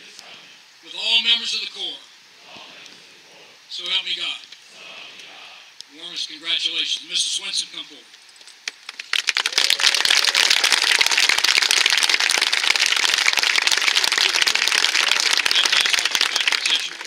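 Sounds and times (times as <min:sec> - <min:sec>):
crowd applause: 0:08.6 - 0:17.0.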